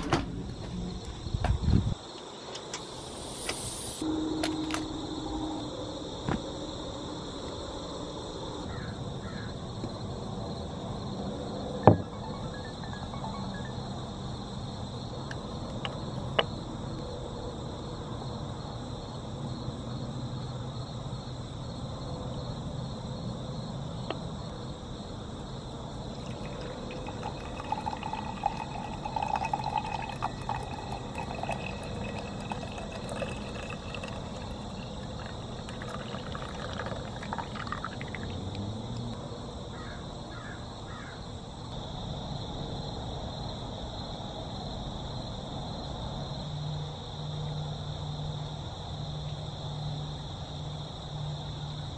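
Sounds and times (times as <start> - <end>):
outdoor background hum: 0.0 - 51.9
coffee pouring into mug: 25.8 - 38.5.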